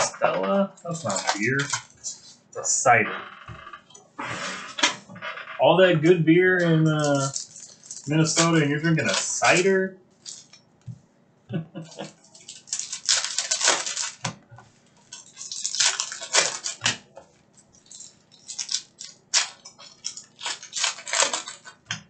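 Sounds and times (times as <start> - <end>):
foil wrappers crinkling and tearing: 0.0 - 2.4, 6.5 - 10.6, 11.9 - 21.9.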